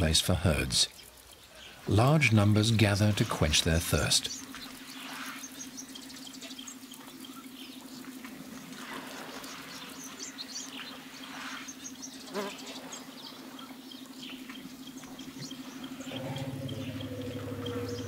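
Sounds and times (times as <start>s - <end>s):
water splashing and sloshing: 4.4s - 18.0s
bird chirps: 9.3s - 18.0s
low hum: 12.8s - 18.0s.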